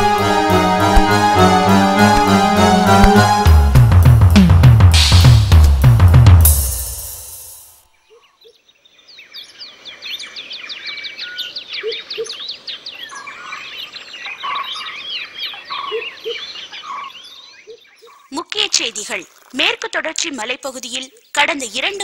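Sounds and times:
birds chirping in dawn chorus: 0:08.0 - 0:18.3.

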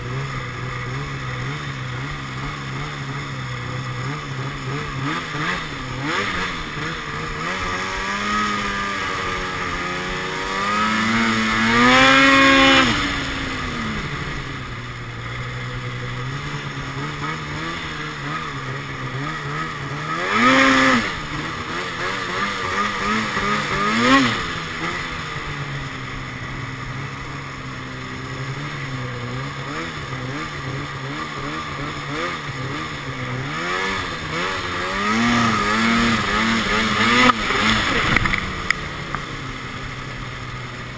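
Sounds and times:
snowmobile engine revving: 0:00.0 - 0:40.9.

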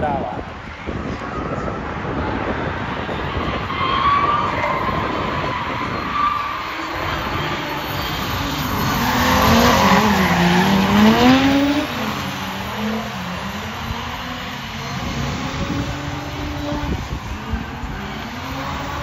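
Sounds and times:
car engines revving: 0:00.0 - 0:19.0
tyres squealing: 0:03.4 - 0:16.7.

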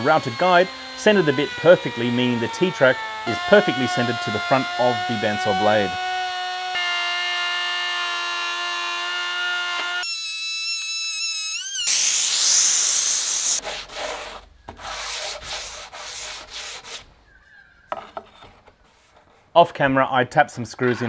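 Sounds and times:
router whining: 0:00.0 - 0:13.6
router cutting wood: 0:00.0 - 0:14.1
hand rubbing wood: 0:13.4 - 0:19.6.

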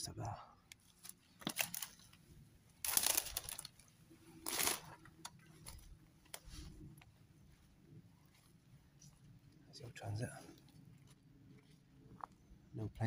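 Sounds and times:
footsteps crunching through twigs: 0:02.8 - 0:09.2.

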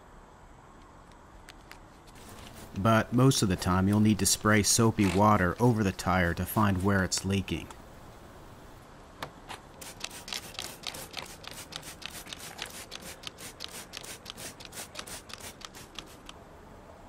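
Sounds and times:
spray bottle squirting: 0:09.8 - 0:16.4.

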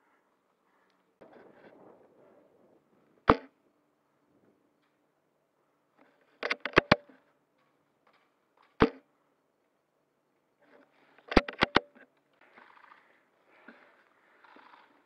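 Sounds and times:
rifle bolt clacks: 0:06.4 - 0:07.1, 0:11.3 - 0:11.9.

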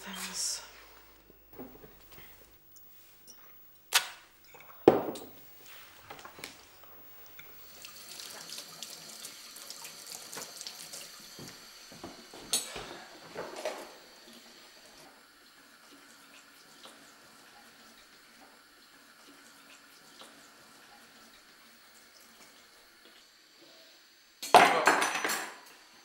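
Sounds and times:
sharp knocks: 0:04.8 - 0:05.4
tap water running into sink: 0:07.3 - 0:12.6
dishes clattering: 0:24.5 - 0:25.6.

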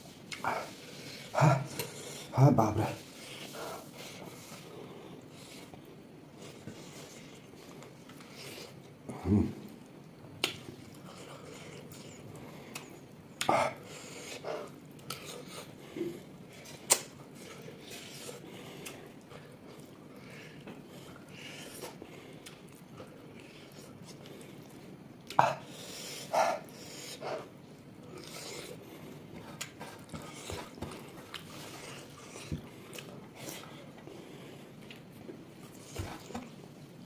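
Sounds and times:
person chewing food: 0:03.2 - 0:36.6.

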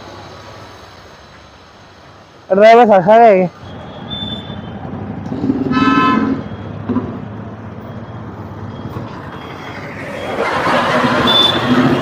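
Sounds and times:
street traffic: 0:00.0 - 0:12.0
vehicle horn honking: 0:05.7 - 0:06.4, 0:11.2 - 0:12.0.

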